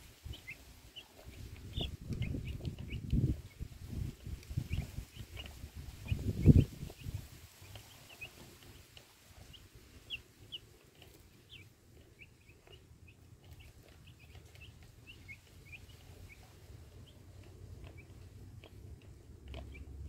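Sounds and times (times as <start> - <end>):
chicks peeping: 0.0 - 20.0.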